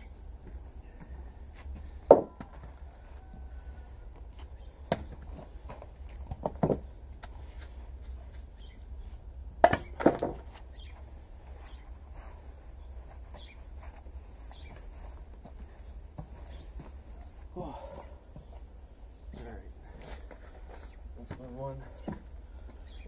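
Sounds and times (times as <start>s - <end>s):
axe chopping firewood: 4.8s - 5.5s, 9.6s - 10.5s.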